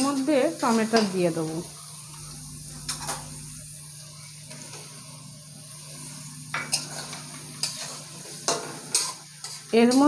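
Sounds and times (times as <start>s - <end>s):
onions sizzling in oil: 0.0s - 10.0s
low hum: 1.4s - 6.5s
metal spatula scraping pan: 6.6s - 10.0s.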